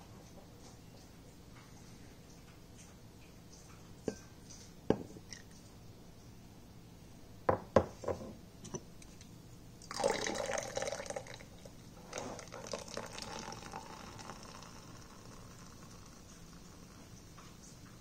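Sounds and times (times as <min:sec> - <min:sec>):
carbonated water pouring into glass: 0:09.8 - 0:17.1.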